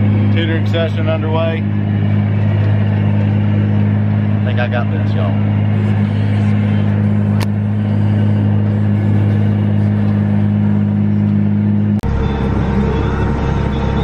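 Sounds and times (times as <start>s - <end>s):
tractor engine droning: 0.0s - 14.0s.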